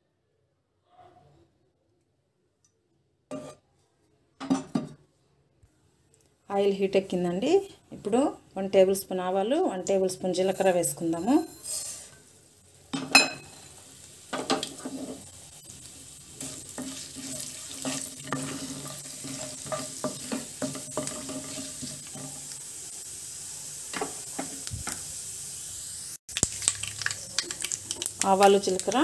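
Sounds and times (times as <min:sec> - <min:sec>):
seeds sizzling in hot oil: 0:09.8 - 0:29.0
mustard seeds crackling and popping: 0:26.3 - 0:29.0.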